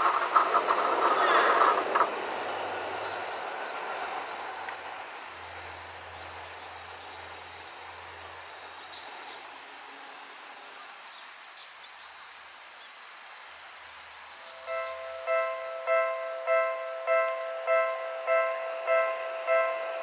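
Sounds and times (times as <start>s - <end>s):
electric train running: 0.0s - 8.5s, 14.5s - 20.0s
high insect drone: 0.0s - 20.0s.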